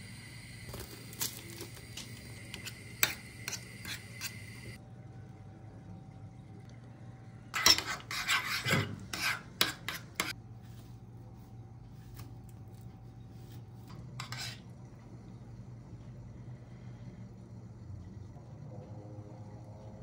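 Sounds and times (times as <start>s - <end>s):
metal spoon stirring in ceramic bowl: 0.7s - 4.8s, 7.6s - 10.4s, 13.9s - 14.6s.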